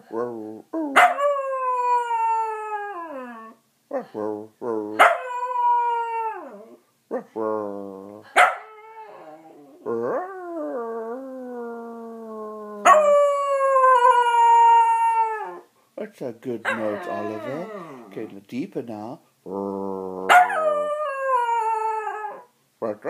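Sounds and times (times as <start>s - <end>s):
dog yelping: 5.0s - 5.6s, 16.7s - 18.2s
dog howling: 5.0s - 6.8s, 8.5s - 15.6s, 16.7s - 18.3s.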